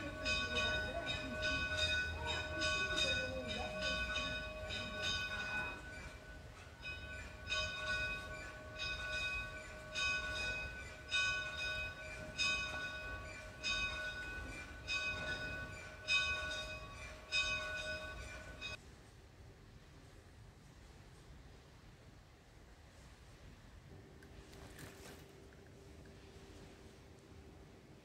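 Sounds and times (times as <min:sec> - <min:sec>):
church bell tolling: 0:00.0 - 0:18.8.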